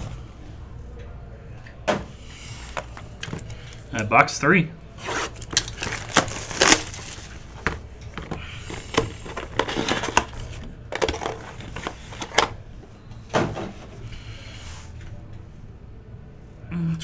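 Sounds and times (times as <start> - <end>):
cardboard box crinkling and tearing: 5.1 - 7.3
clicks and knocks of cardboard and plastic: 5.4 - 12.6.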